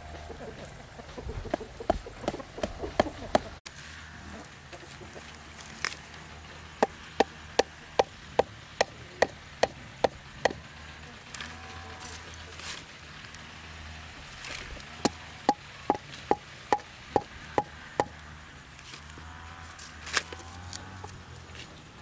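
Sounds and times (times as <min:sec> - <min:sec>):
machete striking bamboo: 0:06.8 - 0:10.6, 0:15.0 - 0:18.2.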